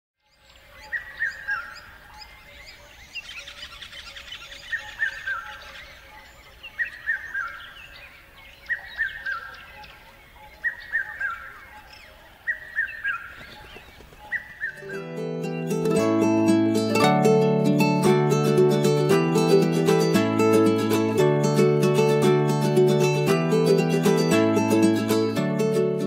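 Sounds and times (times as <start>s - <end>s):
birds chirping and trilling: 0.2s - 25.4s.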